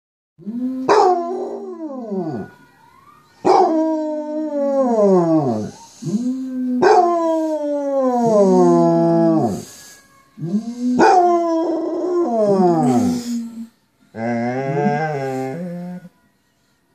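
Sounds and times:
recorded dog howls: 0:00.4 - 0:02.5, 0:03.4 - 0:09.7, 0:10.4 - 0:16.1
dog howling: 0:10.4 - 0:13.4.

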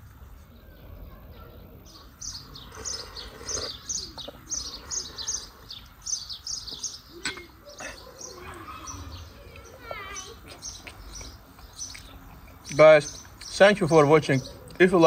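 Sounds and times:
small bird chirping: 0:00.4 - 0:15.0.

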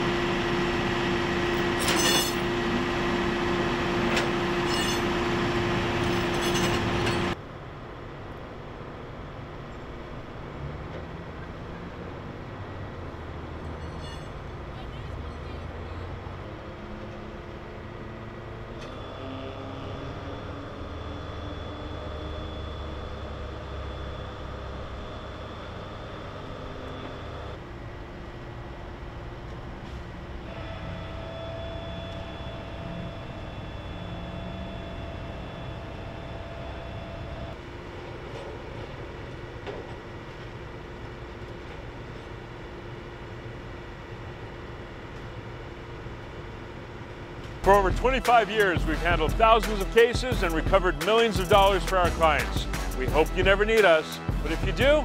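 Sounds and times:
vehicle engines idling: 0:00.0 - 0:31.0, 0:44.5 - 0:55.0
constant hum: 0:00.0 - 0:55.0
engine idling: 0:47.4 - 0:55.0.

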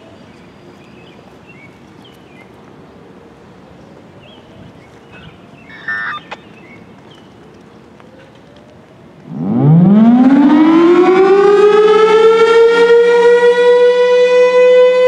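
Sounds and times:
faint bird chirps: 0:05.1 - 0:06.8
pitched call with click: 0:05.2 - 0:06.5
distant siren whoop: 0:09.4 - 0:15.0.

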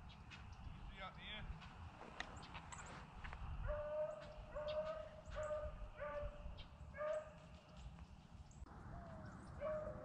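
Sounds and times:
distant hound baying: 0:03.6 - 0:07.5, 0:09.0 - 0:10.0.

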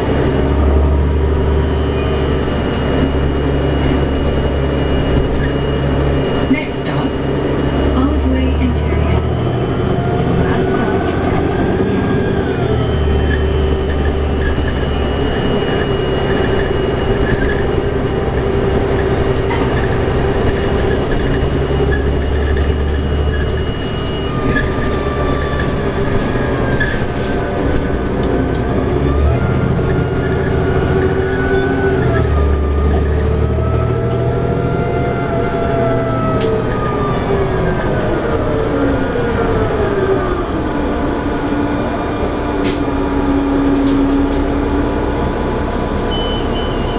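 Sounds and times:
bus engine drone: 0:00.0 - 0:46.9
driveline whine: 0:00.1 - 0:27.9.

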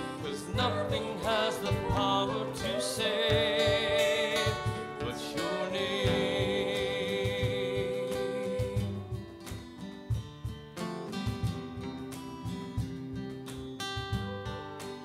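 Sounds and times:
voices singing: 0:00.0 - 0:09.7
cajon beating: 0:00.0 - 0:15.0
strummed acoustic guitars: 0:00.0 - 0:15.0.

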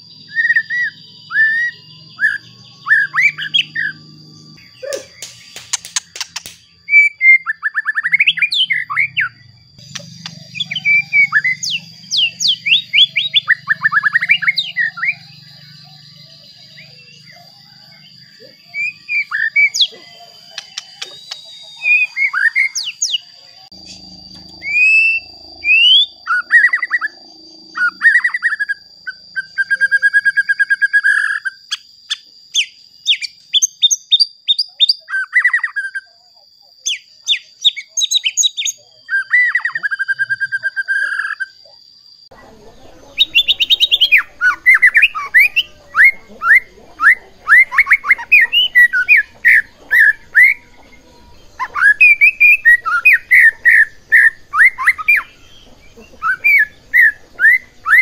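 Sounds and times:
bird singing sharp repeated notes: 0:00.0 - 0:36.0, 0:43.0 - 0:58.0
songbird whistles and trills: 0:00.0 - 0:41.8, 0:42.5 - 0:58.0
steady high whine: 0:08.3 - 0:29.3.

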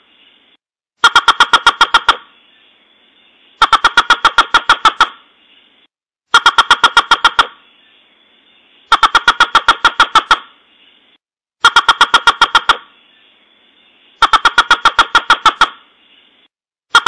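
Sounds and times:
faint recording hiss: 0:00.0 - 0:00.6, 0:02.3 - 0:03.6, 0:05.2 - 0:05.9, 0:07.6 - 0:08.9, 0:12.9 - 0:14.2
sharp rapid bird call notes: 0:01.0 - 0:02.4, 0:03.6 - 0:05.3, 0:06.3 - 0:07.7, 0:08.8 - 0:10.6, 0:11.6 - 0:13.0, 0:14.2 - 0:17.0.

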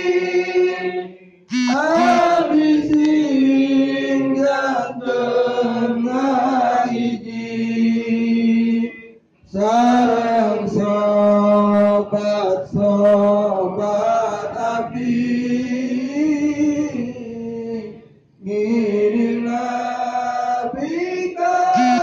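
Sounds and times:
man chanting into a microphone: 0:01.6 - 0:05.0, 0:06.0 - 0:22.0.

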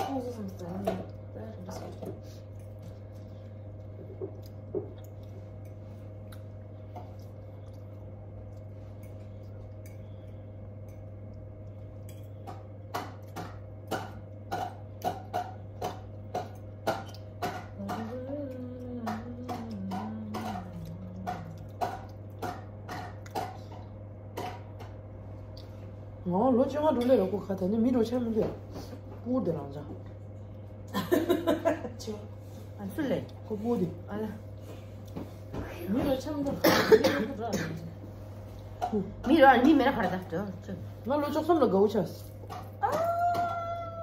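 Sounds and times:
steady low hum: 0:00.0 - 0:44.0
eating sounds: 0:02.4 - 0:12.2, 0:13.2 - 0:24.0
person humming: 0:17.8 - 0:21.8.

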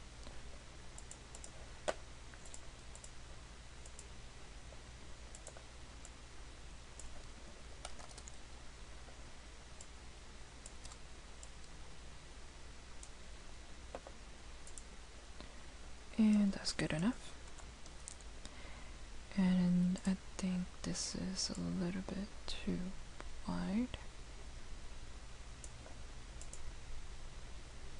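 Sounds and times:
low steady hum: 0:00.0 - 0:27.9
mouse and keyboard clicks: 0:07.0 - 0:08.4.

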